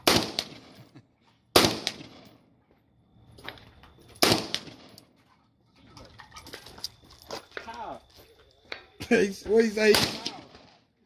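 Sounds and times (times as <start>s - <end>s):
rifle shots with echo: 0.0s - 0.8s, 1.5s - 2.3s, 4.2s - 4.9s, 9.8s - 10.8s.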